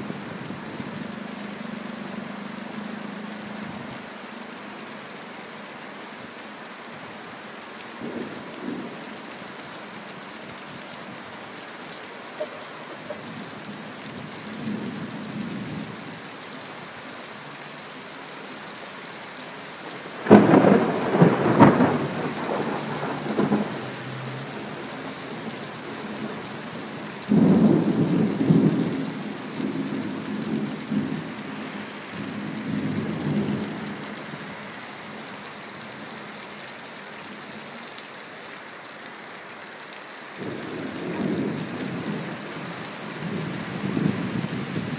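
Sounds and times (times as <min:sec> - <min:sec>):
steady rain falling: 0:00.0 - 0:44.9
rolling thunder: 0:20.2 - 0:26.5.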